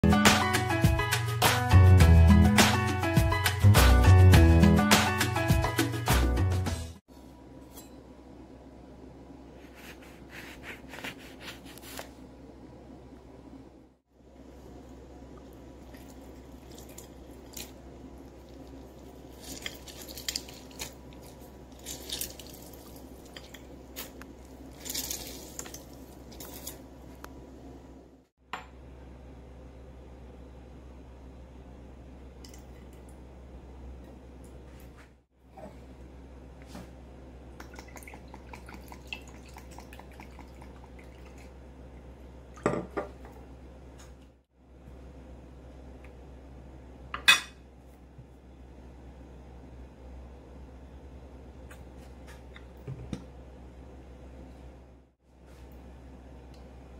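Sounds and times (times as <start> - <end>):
juice dripping and splashing: 15.3 - 26.8, 37.6 - 41.6
lemon squishing: 15.8 - 26.8.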